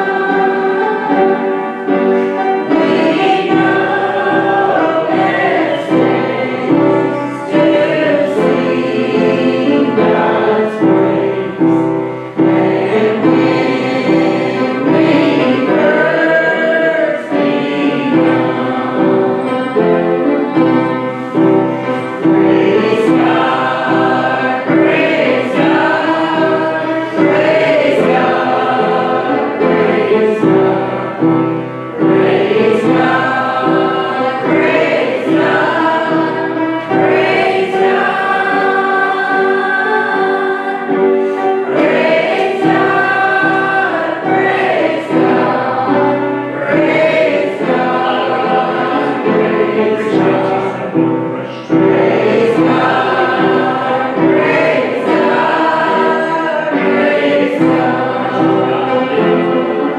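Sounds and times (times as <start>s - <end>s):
congregation singing a hymn: 0.0s - 59.9s.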